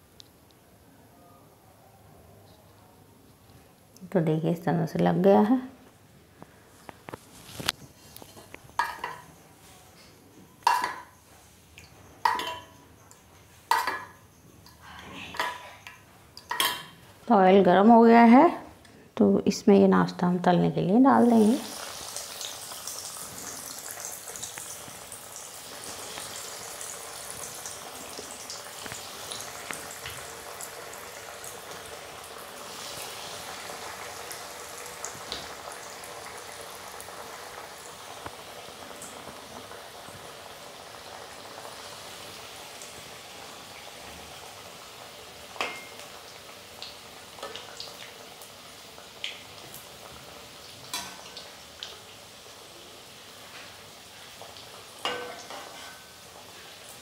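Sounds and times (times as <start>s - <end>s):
snacks deep-frying in oil: 6.4s - 9.4s, 10.0s - 18.4s, 19.5s - 57.0s.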